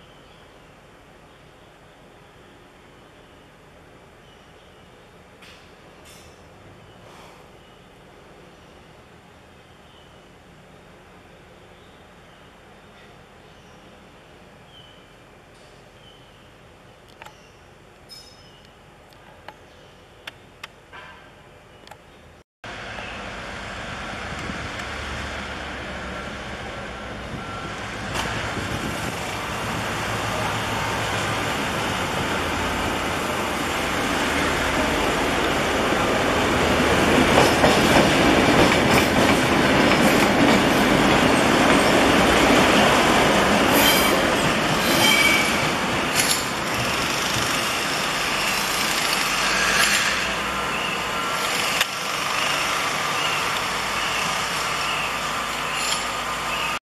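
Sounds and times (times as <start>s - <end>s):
high wheel squeals: 43.7s - 56.8s
wheels rolling on rails: 46.1s - 50.4s, 51.3s - 56.7s.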